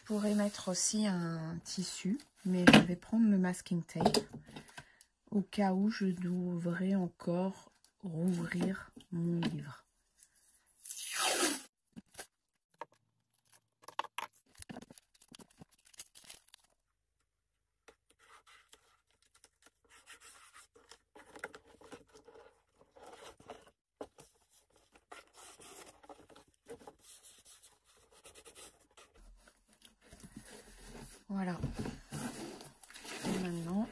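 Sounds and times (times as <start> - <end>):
tape crackling: 13.3 - 16.8.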